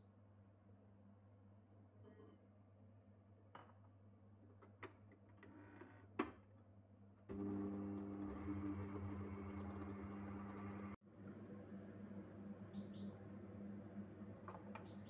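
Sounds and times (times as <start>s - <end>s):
stand mixer motor running: 7.3s - 11.0s.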